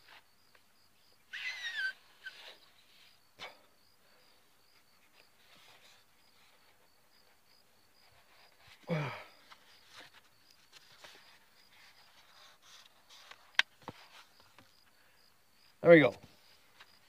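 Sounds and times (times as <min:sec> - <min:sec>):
balloon squeal: 0:01.3 - 0:02.6.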